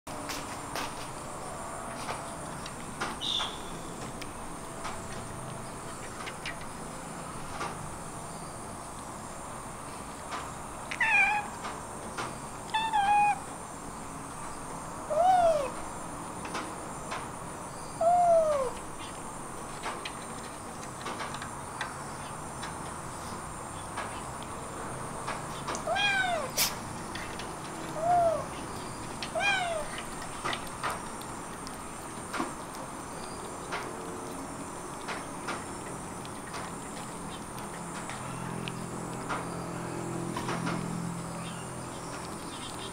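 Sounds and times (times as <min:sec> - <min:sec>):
kittens meowing: 0:10.9 - 0:11.6, 0:12.7 - 0:13.5, 0:15.1 - 0:15.8, 0:18.0 - 0:18.8, 0:25.8 - 0:26.7, 0:27.9 - 0:28.6, 0:29.3 - 0:30.0.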